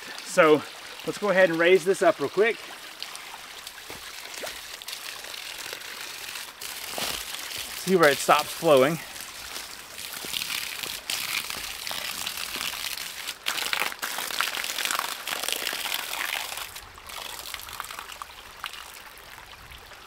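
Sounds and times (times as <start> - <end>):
water trickling and pouring: 0.0 - 20.0
dry leaves rustling: 3.8 - 13.3.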